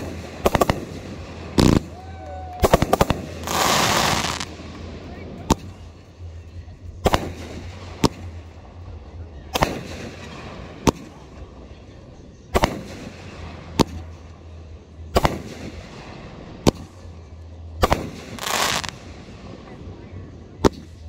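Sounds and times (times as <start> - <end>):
firework bangs: 0.0 - 6.0, 7.0 - 8.8, 9.5 - 11.5, 12.5 - 14.3, 15.0 - 17.2, 17.8 - 19.9.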